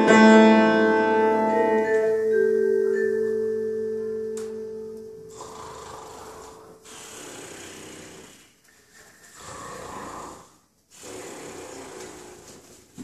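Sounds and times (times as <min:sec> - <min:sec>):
person snoring: 0:05.2 - 0:12.8.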